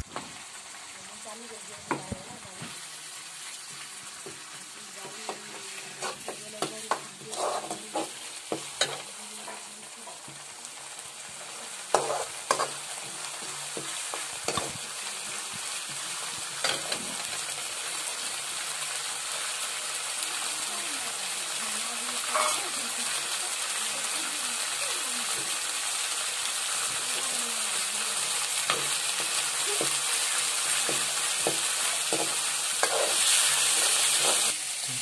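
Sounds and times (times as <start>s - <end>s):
paste sizzling in hot oil: 0.0s - 35.0s
steel spoon scraping a pan: 5.0s - 10.4s, 11.4s - 14.9s, 15.9s - 17.5s, 22.2s - 22.8s, 28.6s - 34.6s.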